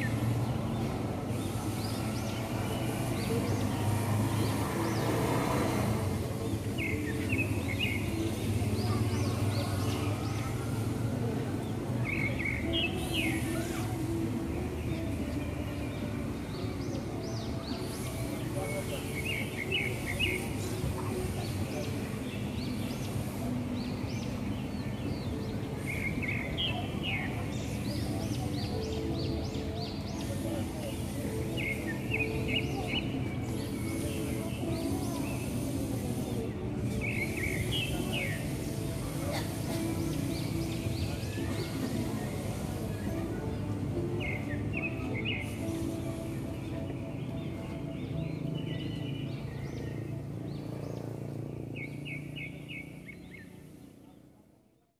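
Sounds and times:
birds chirping: 0.0s - 54.9s
city traffic hum: 0.0s - 54.9s.

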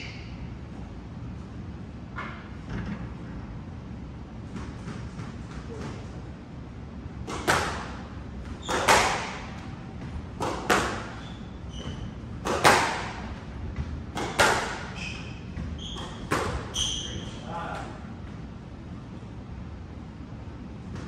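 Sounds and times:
squash ball hits: 7.2s - 17.0s
shoes squeaking on wooden floor: 8.5s - 9.3s, 9.9s - 12.5s, 14.2s - 17.5s.

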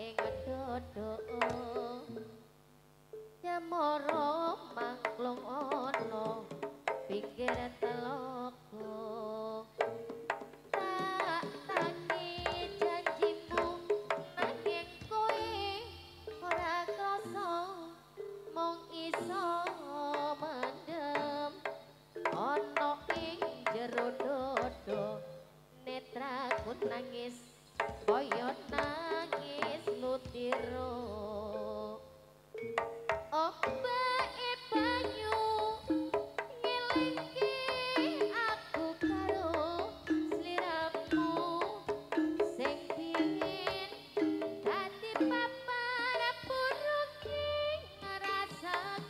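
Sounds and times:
hand-drum strokes: 0.0s - 2.4s, 4.0s - 8.3s, 9.7s - 25.5s, 26.4s - 27.2s, 27.8s - 30.9s, 32.6s - 49.0s.

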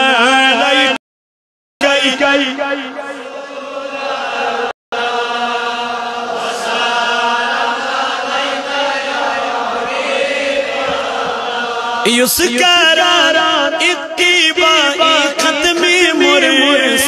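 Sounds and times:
men chanting together: 1.9s - 12.2s.

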